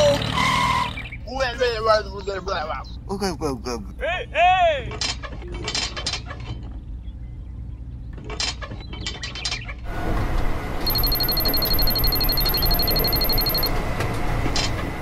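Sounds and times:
high electronic tone: 0:10.8 - 0:13.7.

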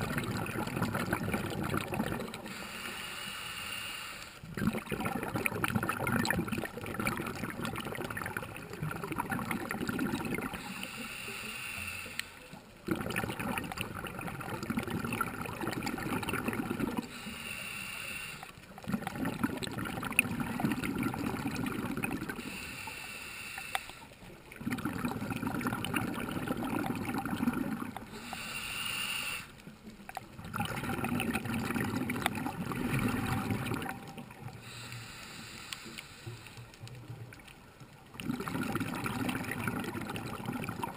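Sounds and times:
exhaled bubbles burbling: 0:00.0 - 0:02.6, 0:04.5 - 0:10.7, 0:12.8 - 0:17.2, 0:18.7 - 0:22.6, 0:24.3 - 0:28.4, 0:29.7 - 0:34.8, 0:36.8 - 0:40.9
regulator inhale hiss: 0:02.4 - 0:04.5, 0:10.6 - 0:12.6, 0:17.0 - 0:18.7, 0:22.4 - 0:24.3, 0:28.1 - 0:29.7, 0:34.6 - 0:36.8.

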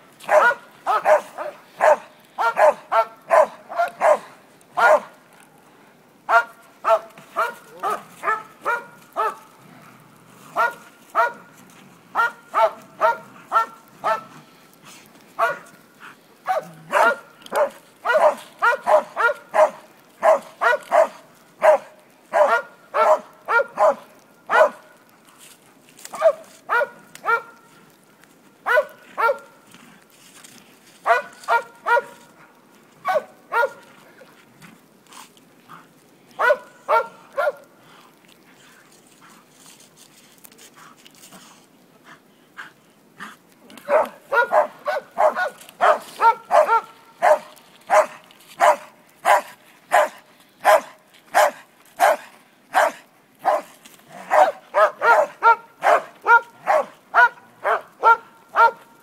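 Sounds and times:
dog barking: 0:00.2 - 0:05.2, 0:06.3 - 0:09.4, 0:10.6 - 0:11.5, 0:12.2 - 0:14.3, 0:15.4 - 0:15.7, 0:16.4 - 0:24.9, 0:26.2 - 0:27.6, 0:28.6 - 0:29.5, 0:31.0 - 0:32.2, 0:33.0 - 0:33.8, 0:36.4 - 0:37.7, 0:43.8 - 0:58.8.

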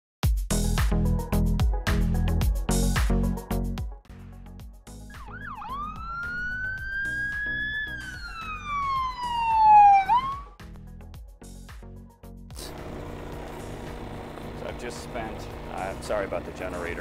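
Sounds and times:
music with steady beat: 0:00.2 - 0:16.0
siren wail: 0:05.1 - 0:10.6.

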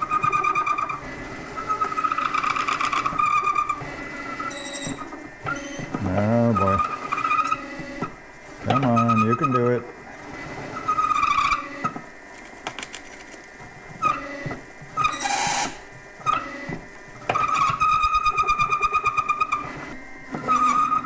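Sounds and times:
drill squealing through metal: 0:00.0 - 0:07.9, 0:08.7 - 0:09.9, 0:10.7 - 0:11.9, 0:15.0 - 0:16.7, 0:17.3 - 0:19.8, 0:20.4 - 0:21.0.

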